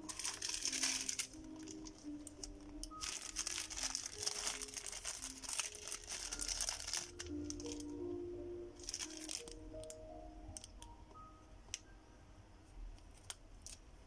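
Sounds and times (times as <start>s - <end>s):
plastic packaging crinkling: 0.0s - 8.2s, 8.8s - 10.9s, 13.1s - 13.8s
soft background music: 0.0s - 14.0s.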